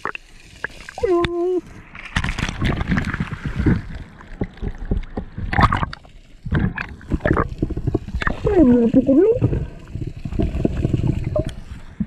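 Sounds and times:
water splashing and sloshing: 0.0s - 12.0s
muffled underwater gurgling: 2.8s - 12.0s.

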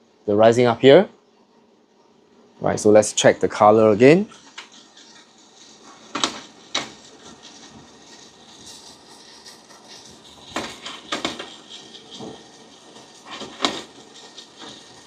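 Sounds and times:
coffee roaster running: 3.0s - 15.0s.

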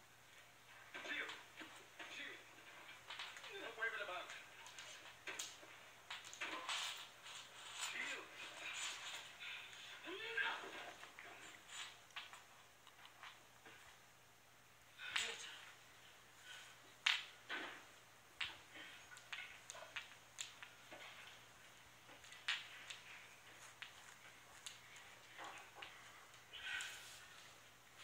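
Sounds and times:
claws clicking on wooden floor: 4.3s - 7.9s, 17.0s - 17.6s, 18.4s - 21.4s, 22.0s - 28.0s.

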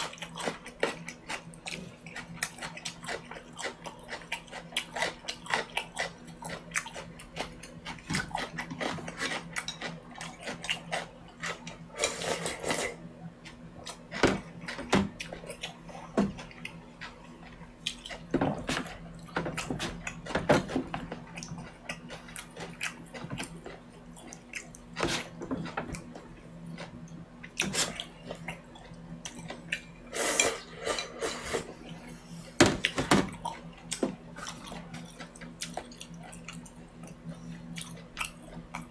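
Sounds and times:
slurping and chewing noodles: 0.0s - 13.0s.

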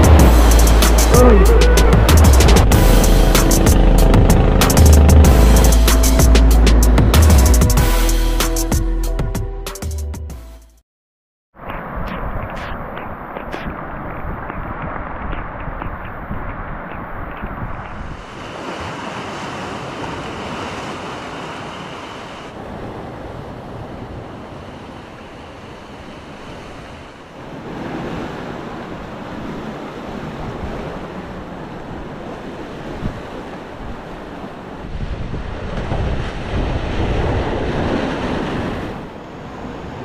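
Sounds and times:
wind rumbling on microphone: 11.6s - 18.9s, 22.5s - 40.0s
sea surf breaking on rocks: 11.6s - 40.0s.

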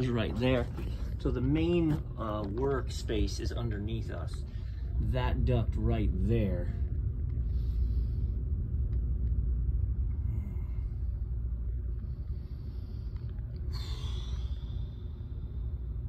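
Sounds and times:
scuffing: 0.0s - 3.1s
soft rustling: 0.0s - 4.7s
steady low rumble: 0.0s - 16.0s.

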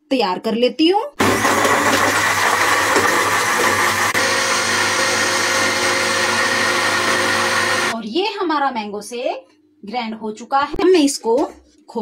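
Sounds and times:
mixer grinder motor whirring: 1.2s - 8.0s.

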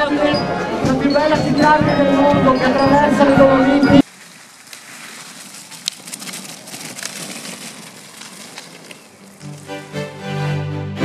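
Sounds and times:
music: 0.0s - 4.0s, 9.4s - 11.0s.

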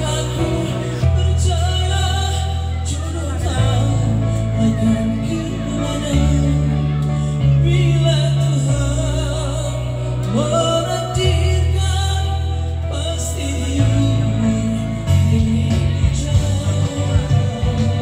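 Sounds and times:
electronic keyboard playing chords: 0.0s - 18.0s
man singing into a microphone: 0.0s - 18.0s.

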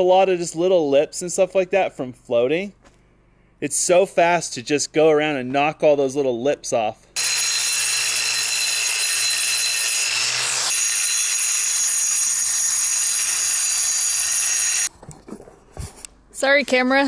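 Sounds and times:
angle grinder grinding concrete: 7.2s - 14.9s.

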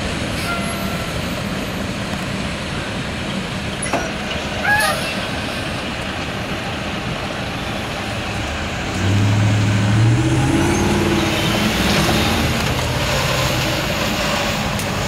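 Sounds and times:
steady traffic rumble: 0.0s - 15.0s
truck engine accelerating: 5.9s - 15.0s.

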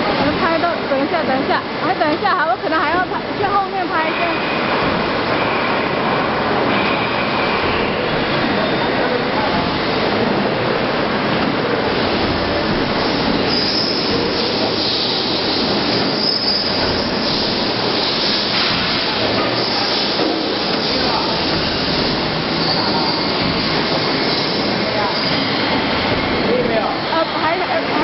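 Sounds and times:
high machine squeal: 4.0s - 9.0s, 13.0s - 27.6s
die-cutting press running: 4.1s - 27.0s.

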